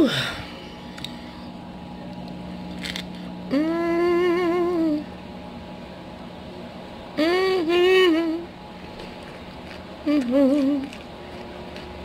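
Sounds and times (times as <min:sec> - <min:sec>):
woman humming: 0:03.4 - 0:05.2, 0:07.2 - 0:08.5, 0:10.0 - 0:11.0
chewing: 0:09.0 - 0:12.0.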